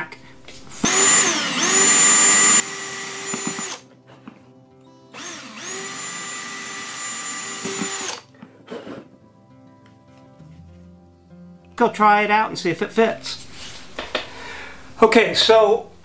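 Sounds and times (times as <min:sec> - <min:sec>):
cordless drill running: 0:00.7 - 0:03.8, 0:05.2 - 0:08.3.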